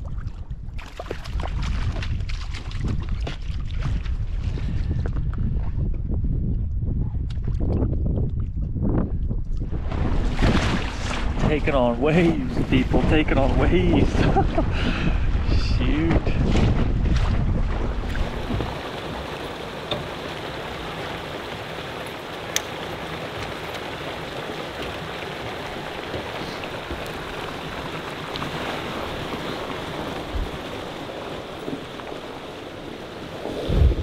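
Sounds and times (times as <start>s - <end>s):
wind buffeting: 0.0s - 34.0s
waves against inflatable boat: 9.8s - 34.0s
water rushing from hose: 17.8s - 34.0s.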